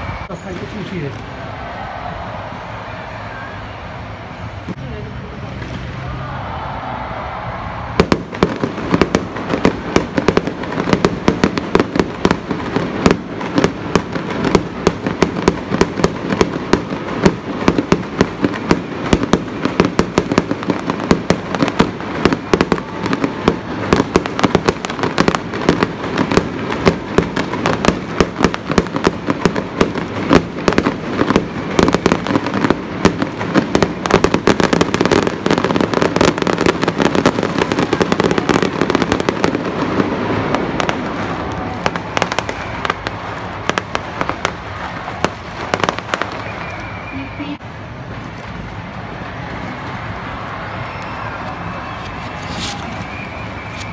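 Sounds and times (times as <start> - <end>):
fireworks bangs and crackles: 0.0 - 53.9
fireworks hissing: 51.8 - 53.9.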